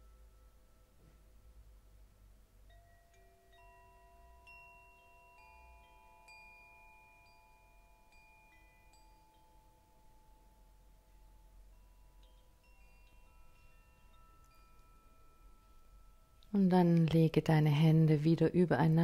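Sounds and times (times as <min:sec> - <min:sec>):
soft struck bell notes: 0:02.6 - 0:17.2.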